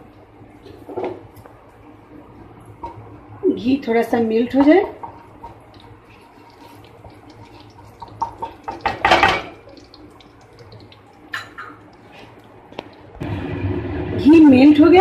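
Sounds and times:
spatula clatter: 0:04.6 - 0:12.3.

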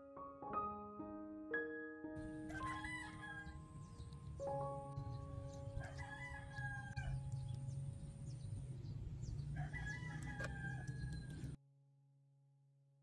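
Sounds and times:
low background rumble: 0:02.2 - 0:11.6
rooster crowing: 0:02.4 - 0:03.7, 0:05.8 - 0:07.2, 0:09.5 - 0:11.6.

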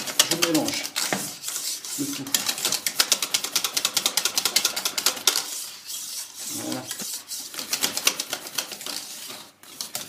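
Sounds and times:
whisk clicking against metal pan: 0:00.0 - 0:01.0.

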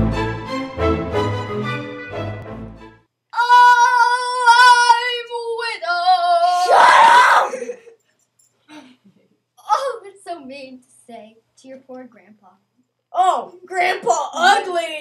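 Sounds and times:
violin music: 0:00.0 - 0:03.0
person screaming: 0:03.4 - 0:04.7, 0:06.4 - 0:07.9.

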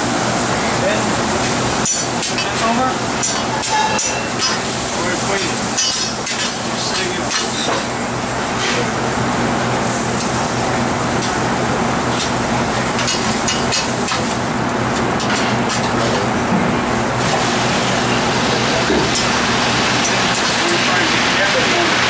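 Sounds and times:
meat sizzling on griddle: 0:00.0 - 0:22.0
ventilation hum: 0:00.0 - 0:22.0
metal spatulas scraping steel: 0:03.2 - 0:04.6.

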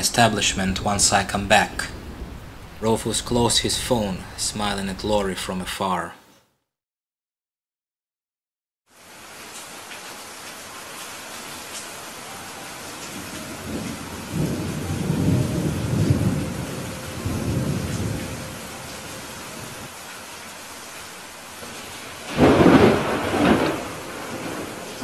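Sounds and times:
thunderclap: 0:00.0 - 0:04.4, 0:13.2 - 0:19.9, 0:21.6 - 0:25.0
rolling thunder rumble: 0:00.0 - 0:05.1, 0:13.0 - 0:19.9, 0:21.6 - 0:25.0
steady rain: 0:00.0 - 0:05.6, 0:08.9 - 0:25.0.

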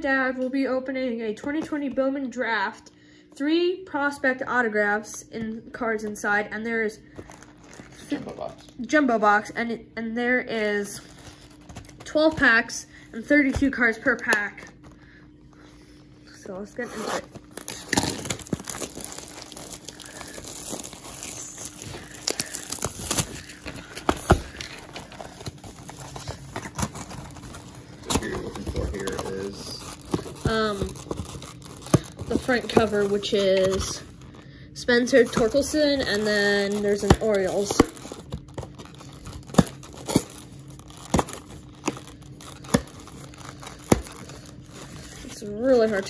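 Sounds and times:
plastic wrap tearing and crinkling: 0:07.2 - 0:08.8, 0:16.8 - 0:34.5, 0:35.1 - 0:46.0
cardboard snapping: 0:36.8 - 0:44.3.

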